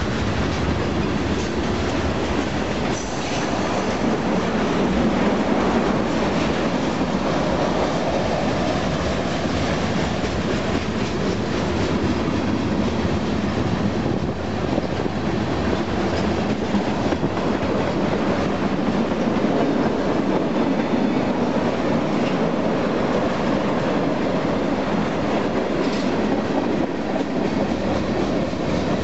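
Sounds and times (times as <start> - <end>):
train wheels rumbling on rail: 0.0 - 29.0
wheels clacking over rail joints: 0.0 - 29.0.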